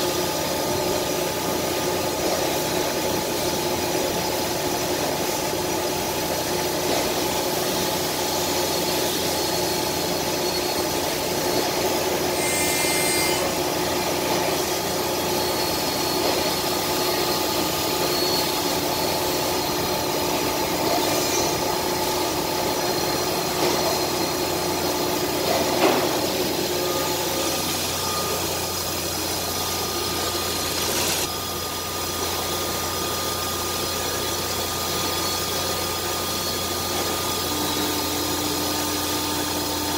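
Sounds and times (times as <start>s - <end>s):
machine whine over hiss: 0.0s - 39.9s.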